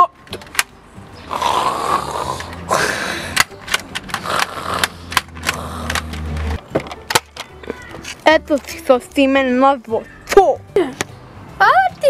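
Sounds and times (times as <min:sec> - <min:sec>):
sharp clicks: 0:03.3 - 0:07.8.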